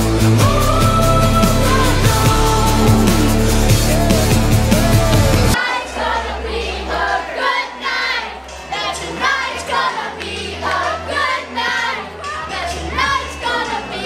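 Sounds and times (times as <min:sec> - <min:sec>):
music over sound system: 0:00.0 - 0:05.6
loud rock music: 0:00.0 - 0:05.8
people singing along: 0:00.0 - 0:14.0.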